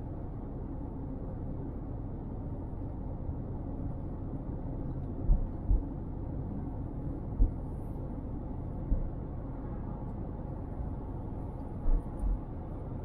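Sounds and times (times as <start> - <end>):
car road and engine rumble: 0.0 - 13.0.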